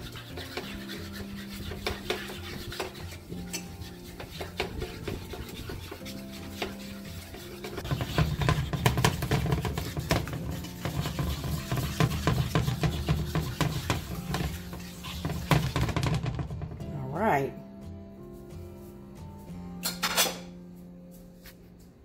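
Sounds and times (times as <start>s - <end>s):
spoon scraping frying pan: 0.0s - 16.7s
background music: 0.0s - 22.0s.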